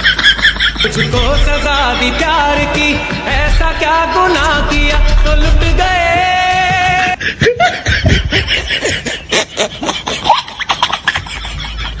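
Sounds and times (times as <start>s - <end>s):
choppy laughter sound effect: 0.0s - 2.6s, 7.0s - 12.0s
song: 0.9s - 7.2s.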